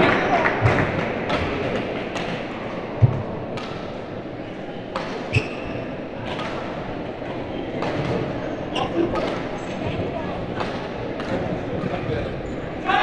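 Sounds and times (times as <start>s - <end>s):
hall background noise: 0.0s - 13.0s
racket hitting shuttlecock: 0.6s - 4.0s.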